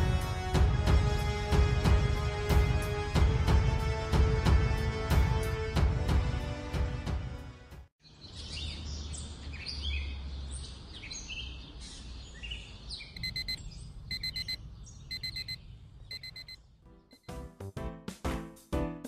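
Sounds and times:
small birds chirping: 8.0 - 17.2
digital alarm clock beeping: 13.2 - 16.6.

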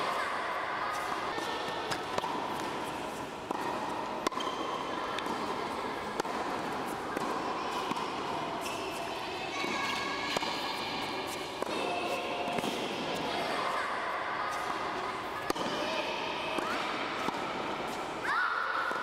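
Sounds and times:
tennis ball hits: 1.0 - 8.4, 9.8 - 13.3.

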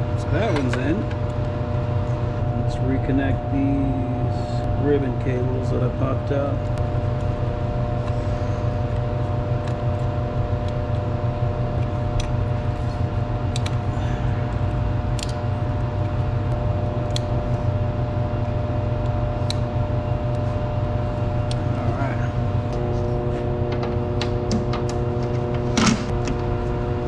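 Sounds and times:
machinery hum with low drone: 0.0 - 27.0
connectors clicking into place: 13.5 - 13.8, 15.2 - 15.4.

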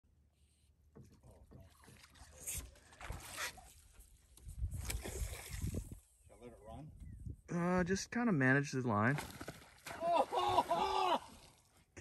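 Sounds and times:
water lapping against boat: 0.9 - 6.1.

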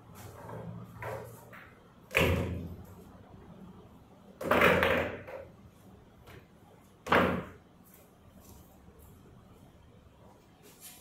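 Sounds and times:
pool balls knocking and clacking: 0.0 - 7.8.

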